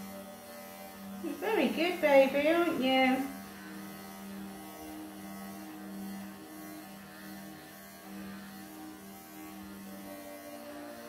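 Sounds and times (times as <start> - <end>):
electric pet clippers humming: 0.0 - 11.0.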